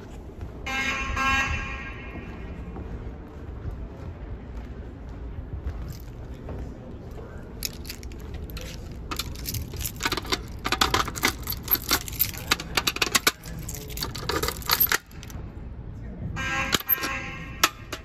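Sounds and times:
keys jingling: 0:07.6 - 0:15.4, 0:16.8 - 0:18.0.

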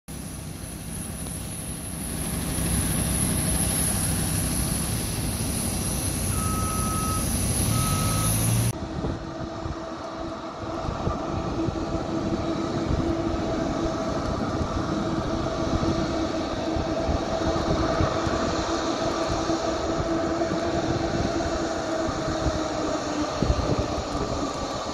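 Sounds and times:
distant jet engines taxiing: 0:00.1 - 0:24.9
low hum of aircraft equipment: 0:00.1 - 0:24.9
steady high whine: 0:00.1 - 0:24.9
short beeps: 0:06.3 - 0:08.4.

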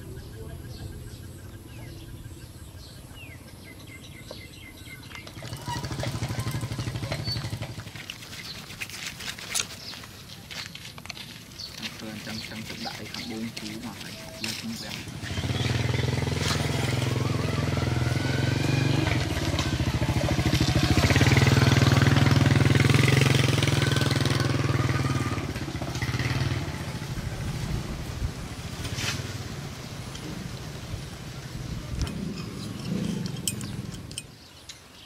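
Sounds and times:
small motorcycle engine running: 0:05.1 - 0:09.6, 0:11.8 - 0:27.4.

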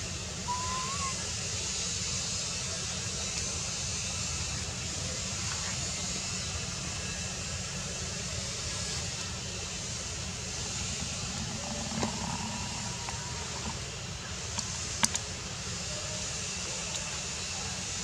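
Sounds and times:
hiss: 0:00.0 - 0:18.0
low rumble: 0:10.3 - 0:14.2.

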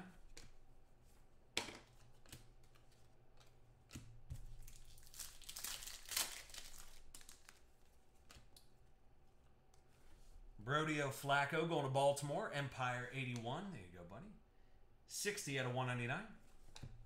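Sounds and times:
cards and wrapper rustling: 0:04.5 - 0:08.6.

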